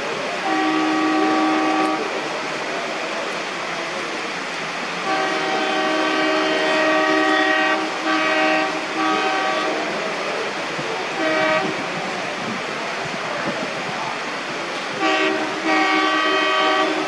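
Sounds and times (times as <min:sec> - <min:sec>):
steady hiss: 0:00.0 - 0:17.0
diesel locomotive horn: 0:00.2 - 0:02.6, 0:05.0 - 0:12.2, 0:14.8 - 0:17.0.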